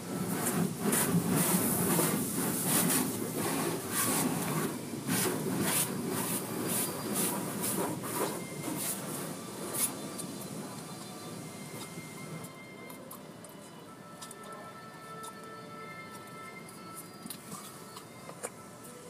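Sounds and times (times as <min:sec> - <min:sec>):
water spraying against car: 0:00.0 - 0:12.7.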